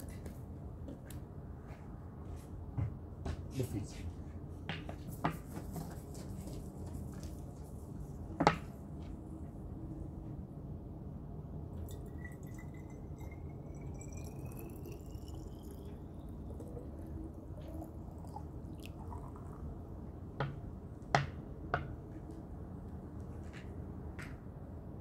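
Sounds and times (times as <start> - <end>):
water pouring into glass bottle: 11.8 - 19.9.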